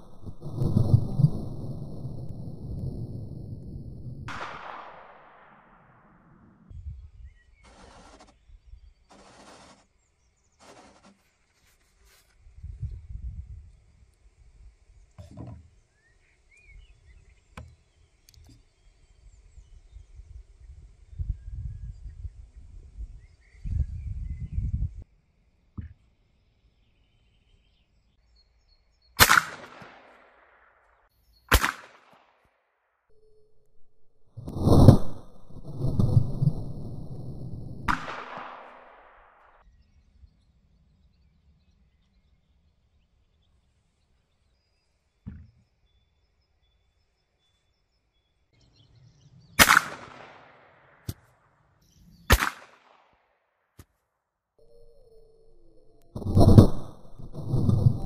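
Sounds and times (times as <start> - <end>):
sharp gunshot bangs with echo: 29.2 - 30.4, 31.5 - 32.3, 49.6 - 51.2, 52.3 - 53.0
sharp bangs: 34.5 - 39.5.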